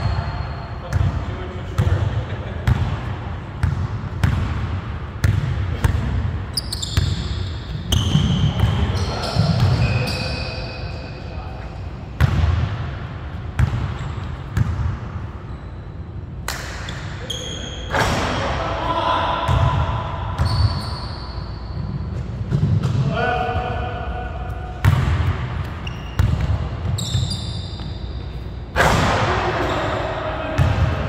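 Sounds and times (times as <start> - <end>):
sneakers squeaking: 0.0 - 2.0, 2.6 - 12.4, 13.4 - 18.5, 19.5 - 23.1, 24.5 - 31.0.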